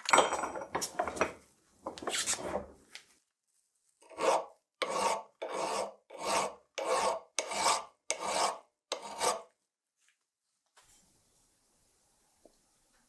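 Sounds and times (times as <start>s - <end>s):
hand file rasping on metal: 4.0s - 9.5s.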